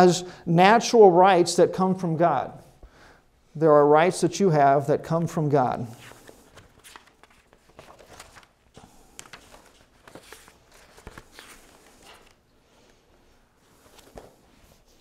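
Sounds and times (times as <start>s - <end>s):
paper rustling: 5.9s - 15.0s.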